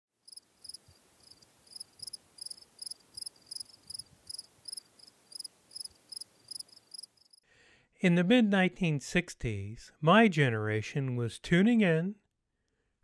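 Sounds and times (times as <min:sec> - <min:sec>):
cricket chirping: 0:00.2 - 0:07.4.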